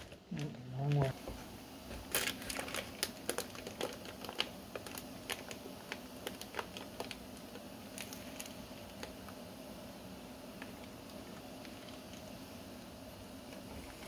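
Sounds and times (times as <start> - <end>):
plastic bag crinkling: 0.0 - 1.3, 2.0 - 9.4, 10.6 - 12.4
steady low hum: 0.0 - 14.0.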